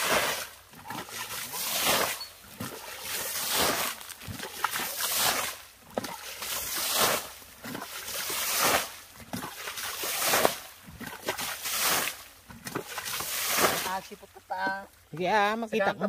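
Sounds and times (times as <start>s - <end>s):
water splashing and sloshing: 0.0s - 15.8s.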